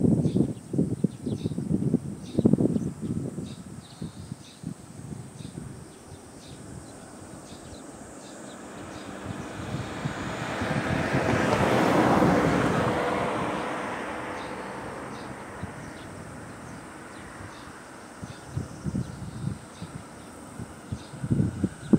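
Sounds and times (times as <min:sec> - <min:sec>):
vehicle passing: 0:05.3 - 0:21.9.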